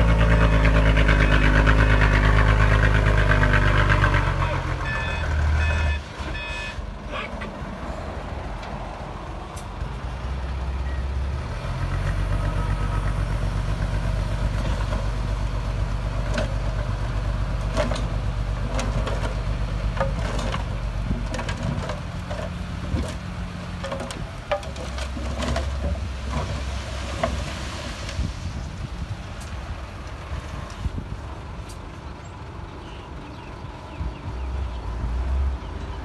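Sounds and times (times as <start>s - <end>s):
diesel truck engine running: 0.0s - 36.0s
soil and rocks clattering: 14.3s - 28.5s.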